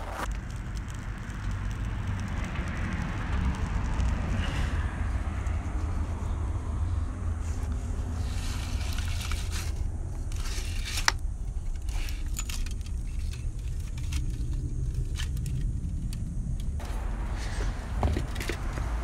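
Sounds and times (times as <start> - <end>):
steady low rumble: 0.0 - 19.0
metallic clinks and scrapes: 8.1 - 15.7.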